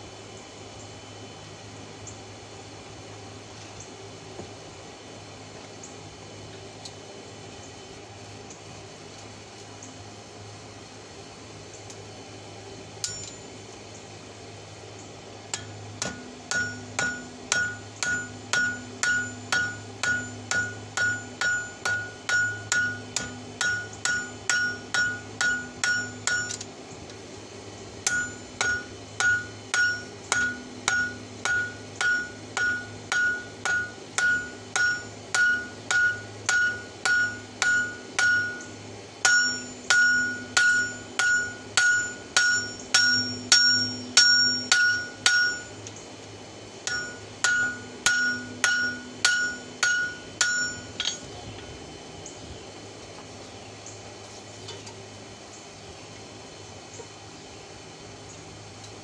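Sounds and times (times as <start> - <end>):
hammer striking steel on anvil: 13.0 - 13.5, 15.5 - 26.7, 28.0 - 45.8, 46.8 - 51.3.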